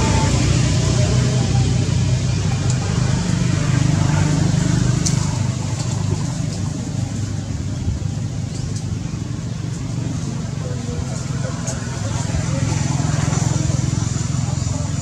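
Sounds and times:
low engine hum: 0.0s - 15.0s.

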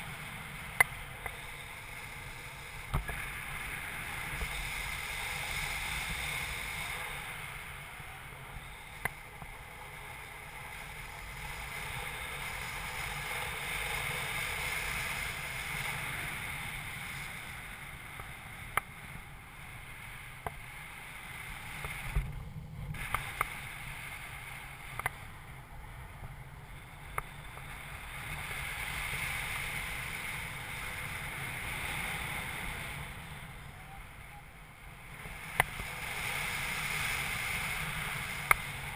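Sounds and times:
rushing airflow whoosh: 0.0s - 18.6s.

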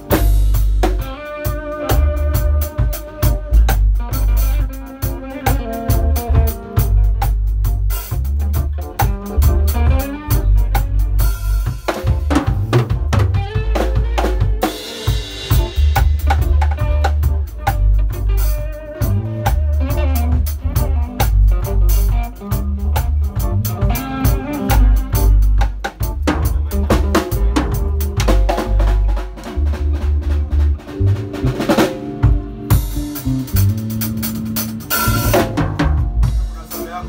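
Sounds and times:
drum kit beat: 0.0s - 37.0s
electric bass line: 0.0s - 37.0s
electric guitar: 0.0s - 37.0s.

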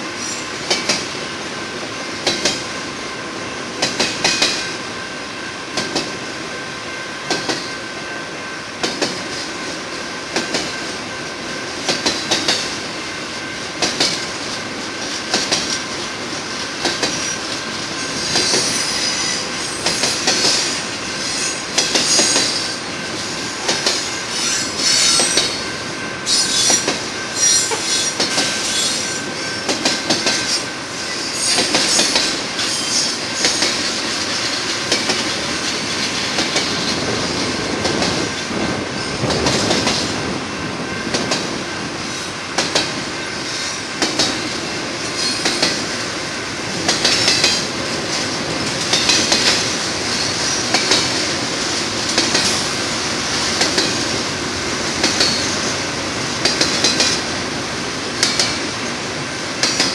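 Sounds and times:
train wheels clicking over rails: 0.0s - 2.8s, 3.6s - 6.5s, 7.2s - 59.9s
high-pitched wheel squeal: 18.0s - 20.6s, 24.1s - 25.6s, 26.3s - 26.8s, 27.4s - 29.7s.

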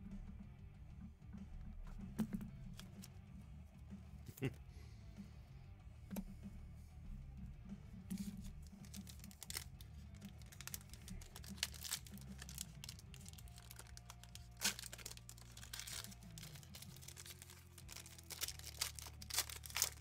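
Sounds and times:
foil wrapper crinkling and tearing: 8.6s - 20.0s.

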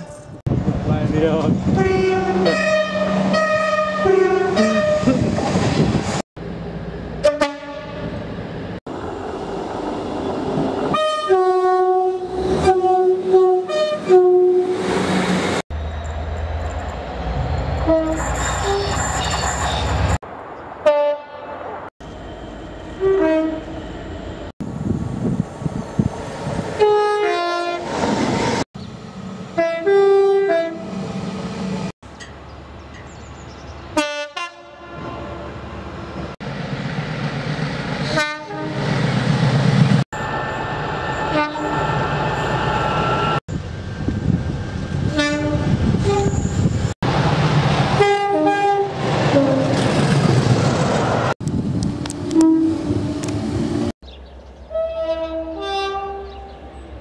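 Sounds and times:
passing train engine and wheels: 0.0s - 57.0s
train horn blasts: 1.7s - 5.2s, 7.2s - 8.1s, 10.9s - 14.7s, 17.8s - 18.9s, 23.0s - 23.8s, 26.8s - 27.8s, 29.6s - 31.0s, 34.0s - 35.6s, 38.1s - 38.8s, 41.3s - 41.8s, 45.0s - 46.4s, 48.0s - 49.7s, 52.3s - 52.9s, 54.7s - 56.6s.

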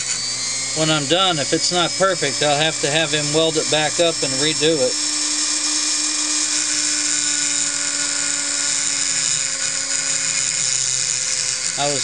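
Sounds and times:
rotary tool grinding metal: 0.0s - 12.0s.

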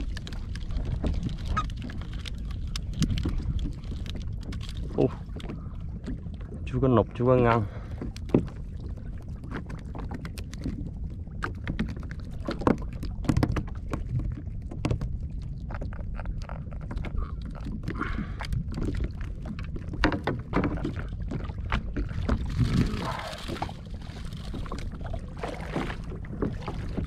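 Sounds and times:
low wind and water rumble: 0.0s - 27.0s
water lapping against kayak hull: 0.0s - 27.0s
knocks and taps on hull: 8.0s - 27.0s.

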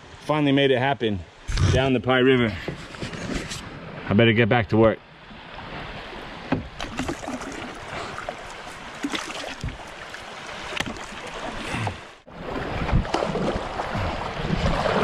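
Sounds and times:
paddle strokes splashing: 5.6s - 15.0s
river water rushing: 6.2s - 15.0s.

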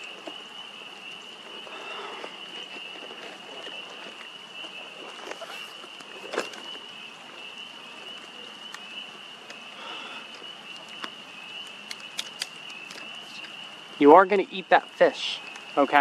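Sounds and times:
chorus of frogs or insects: 0.0s - 16.0s
sharp clicks: 10.7s - 13.5s.

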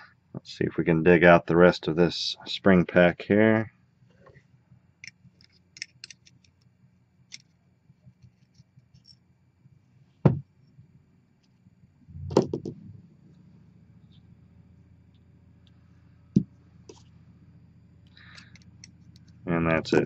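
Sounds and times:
metal pick clicking and scraping: 5.0s - 6.7s, 18.1s - 19.4s
sharp knocks: 10.3s - 10.5s, 12.2s - 12.8s.

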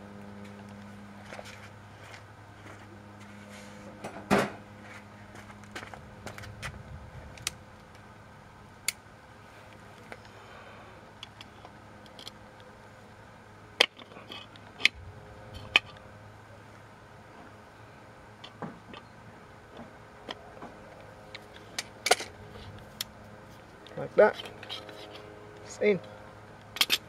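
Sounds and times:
low steady hum: 0.0s - 27.0s
metallic clicks of brake parts: 23.8s - 27.0s.

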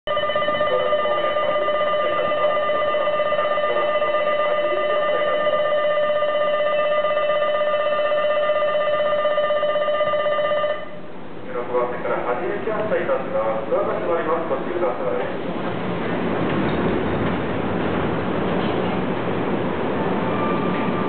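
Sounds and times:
departure bell ringing: 0.1s - 11.0s.

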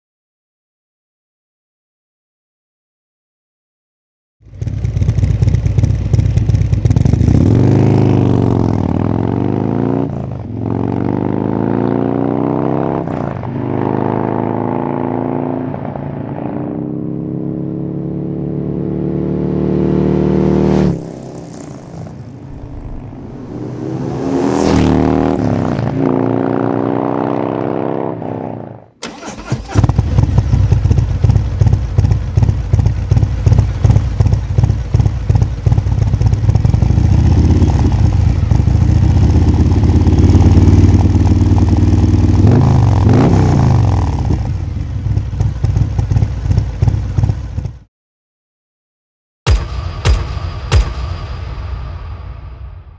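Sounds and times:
motorcycle engine idling: 4.4s - 7.9s, 29.9s - 42.3s, 44.5s - 47.8s
motorcycle accelerating: 4.4s - 47.9s.

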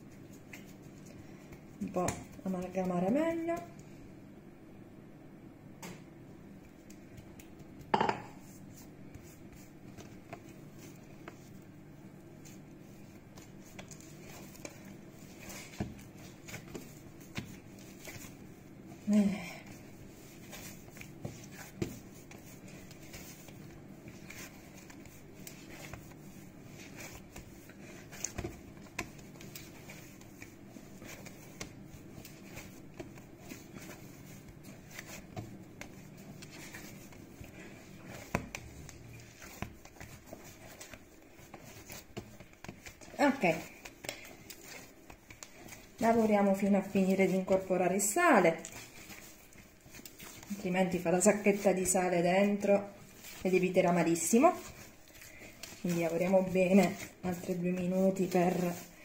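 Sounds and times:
hands kneading bread dough: 0.0s - 4.4s, 6.0s - 59.0s
sharp knocks on countertop: 7.9s - 8.3s.

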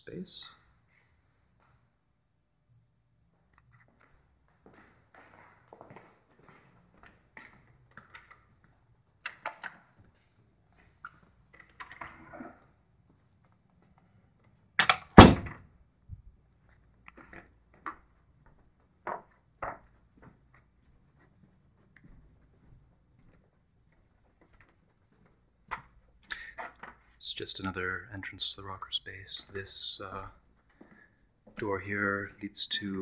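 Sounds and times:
light footsteps: 3.3s - 7.9s, 16.6s - 27.2s, 29.2s - 33.0s
door shutting with heavy thuds: 15.2s - 15.6s.

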